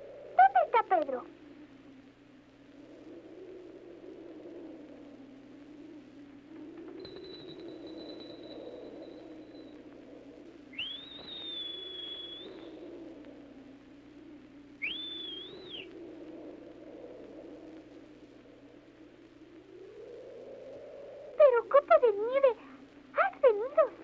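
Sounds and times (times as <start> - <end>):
high-pitched whistling: 6.9 - 9.8, 10.7 - 12.9, 14.8 - 15.9.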